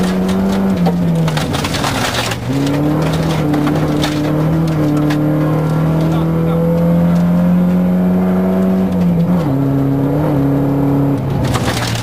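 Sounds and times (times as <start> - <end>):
gravel rattling against underbody: 0.0 - 6.2, 11.2 - 12.0
rally car engine: 0.0 - 12.0.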